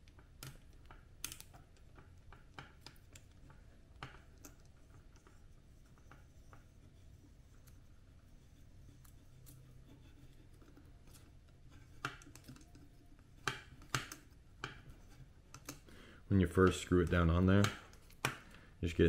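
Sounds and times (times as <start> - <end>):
plastic parts clicking: 0.0 - 6.7, 10.4 - 15.9.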